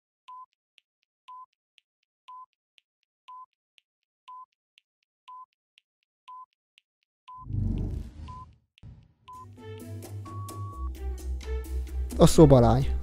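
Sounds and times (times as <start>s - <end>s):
faint timer ticks: 0.3s - 0.6s, 1.3s - 1.6s, 2.2s - 2.6s, 3.3s - 3.6s, 4.3s - 4.6s, 5.3s - 5.6s, 6.2s - 8.5s
short electronic beeps: 7.3s - 8.5s.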